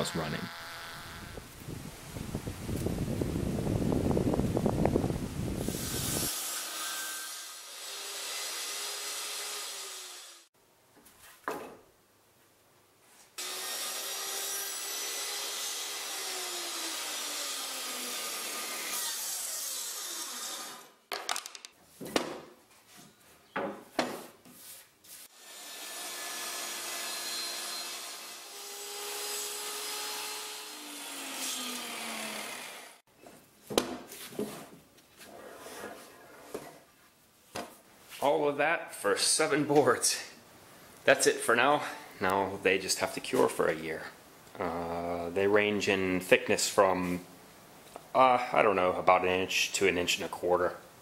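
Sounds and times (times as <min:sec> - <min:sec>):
table saw ripping boards: 0:05.6 - 0:10.5, 0:13.4 - 0:22.5, 0:25.3 - 0:33.0
boards knocking and clattering: 0:21.1 - 0:22.6.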